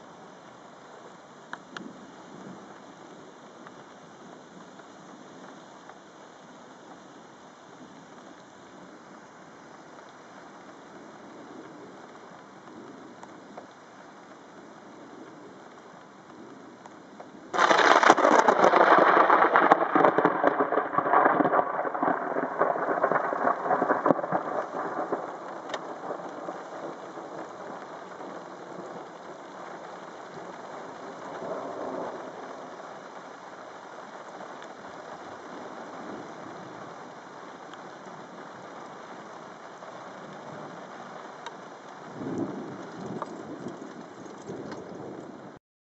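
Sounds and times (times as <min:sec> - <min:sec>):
rain falling: 0:00.0 - 0:45.6
thunder clap rolling: 0:17.6 - 0:29.8, 0:31.2 - 0:32.7.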